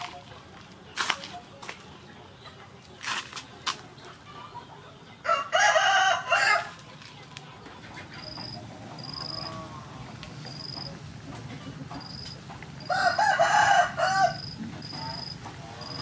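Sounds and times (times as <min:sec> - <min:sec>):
rooster crowing: 0:05.2 - 0:06.8, 0:12.8 - 0:15.3.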